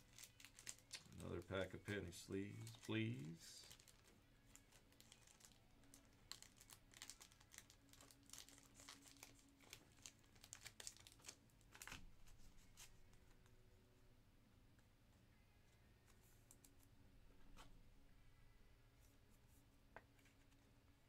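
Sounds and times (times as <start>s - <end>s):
thin plastic crinkling: 0.0s - 13.5s.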